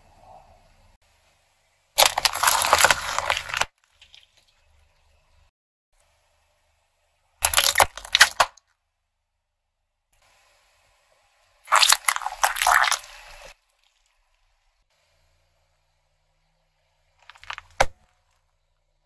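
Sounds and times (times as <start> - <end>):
tyre crushing objects: 2.0 - 4.2, 7.4 - 8.6, 11.7 - 13.1, 17.2 - 18.0.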